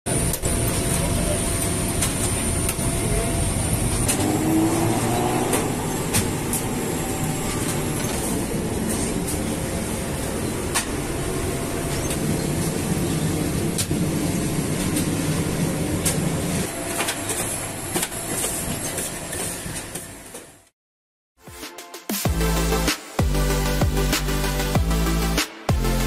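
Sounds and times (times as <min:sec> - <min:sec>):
machinery rumble and hum: 0:00.1 - 0:20.4.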